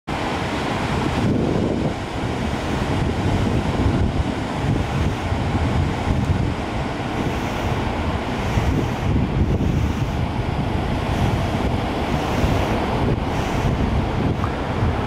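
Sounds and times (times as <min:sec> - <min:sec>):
ocean surf breaking: 0:00.1 - 0:15.0
wind buffeting the microphone: 0:00.1 - 0:15.0.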